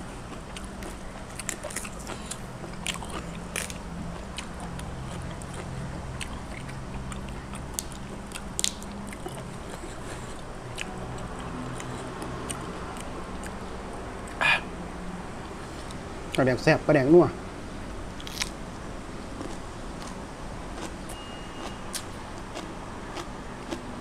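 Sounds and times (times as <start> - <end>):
person chewing crunchy food: 0.0 - 13.6, 18.2 - 18.6, 19.3 - 23.9
low steady hum: 0.0 - 24.0.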